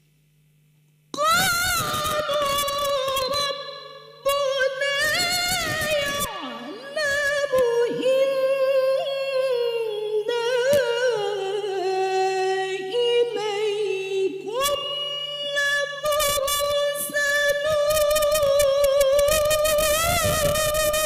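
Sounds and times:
woman reciting melodically: 0:01.2 - 0:21.0.

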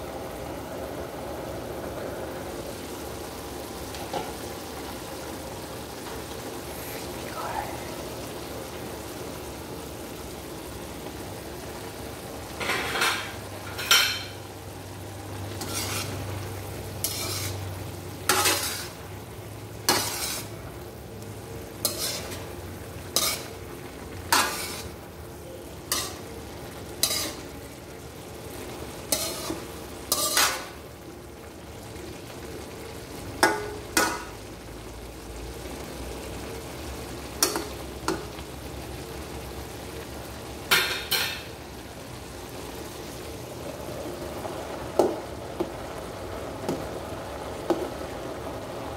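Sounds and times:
frying sizzle: 0:00.0 - 0:48.9
spatula scraping metal wok: 0:15.5 - 0:19.1, 0:19.8 - 0:20.7, 0:21.7 - 0:25.0, 0:25.8 - 0:27.5, 0:29.0 - 0:30.8.

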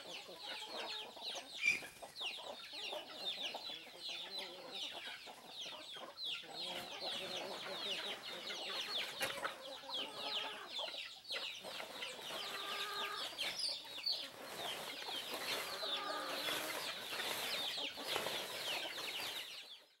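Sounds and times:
drawn-out hen calls: 0:00.0 - 0:19.8
chickens clucking: 0:00.0 - 0:20.0.

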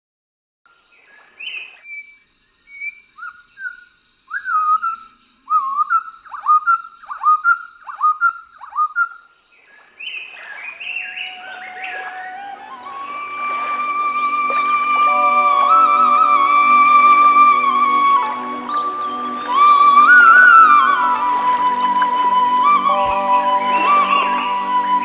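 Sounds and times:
bird calling in sharp notes: 0:11.0 - 0:25.0
flute-like melody music: 0:11.2 - 0:25.0
steady high-pitched drone: 0:11.9 - 0:25.0.

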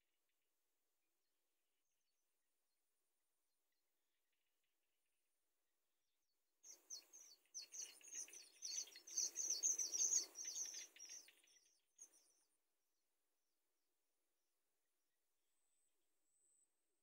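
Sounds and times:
bird chicks chirping: 0:06.7 - 0:12.4.

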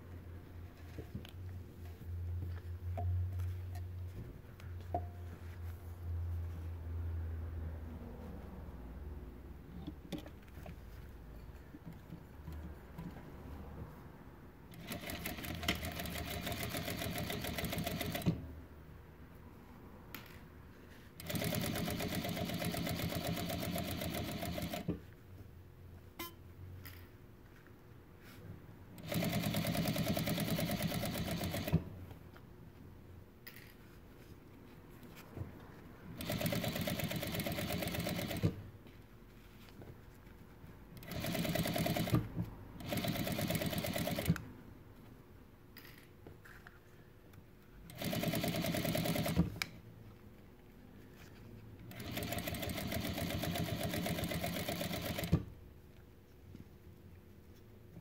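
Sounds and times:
sewing machine stitching: 0:14.7 - 0:18.4, 0:21.2 - 0:25.0, 0:29.0 - 0:31.9, 0:36.2 - 0:38.6, 0:41.0 - 0:44.4, 0:47.9 - 0:49.6, 0:51.9 - 0:55.5.

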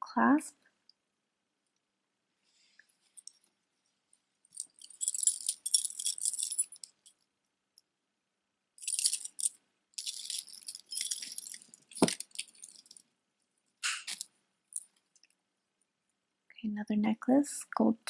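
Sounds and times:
metal necklace jingling: 0:04.5 - 0:07.1, 0:08.8 - 0:13.0, 0:14.1 - 0:15.0.

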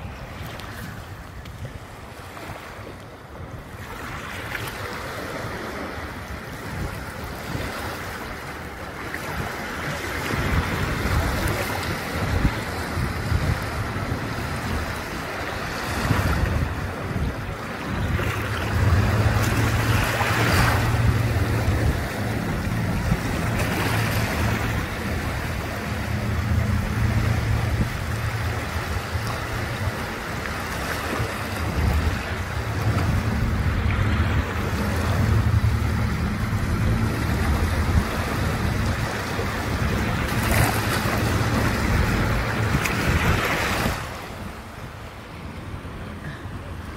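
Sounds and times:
small waves washing on beach: 0:00.0 - 0:46.9
low rumble: 0:18.0 - 0:44.2.

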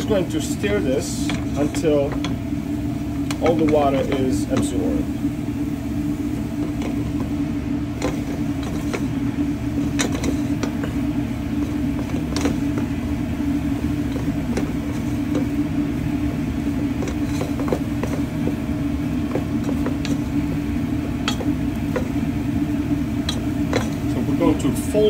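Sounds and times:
low mechanical hum: 0:00.0 - 0:25.0
wooden spoon stirring thick dough: 0:06.4 - 0:22.2.

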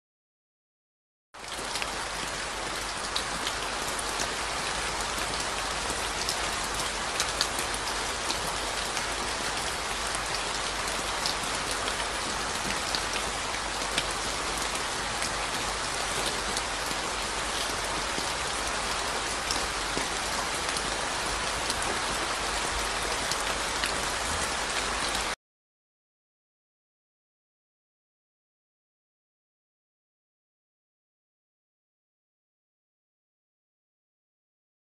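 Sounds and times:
rain falling on wet ground: 0:01.4 - 0:25.4.

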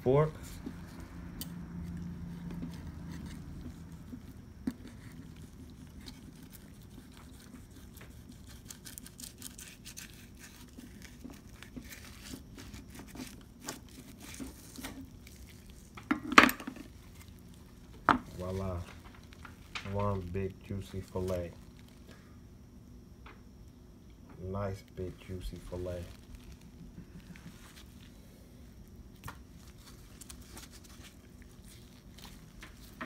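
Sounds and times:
knife scraping fish skin: 0:02.4 - 0:15.9.

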